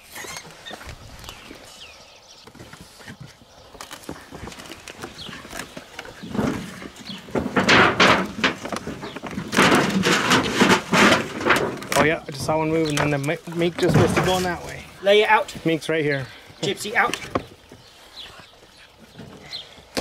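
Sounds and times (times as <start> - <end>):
tires and boards scraping and knocking: 2.4 - 15.8.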